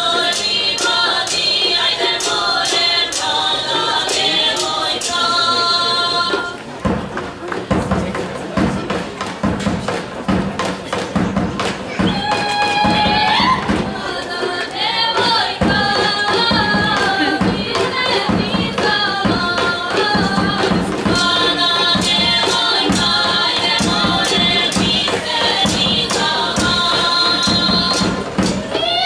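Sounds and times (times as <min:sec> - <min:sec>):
women singing folk song: 0:00.0 - 0:06.6, 0:12.1 - 0:29.0
large drum beat: 0:06.7 - 0:29.0.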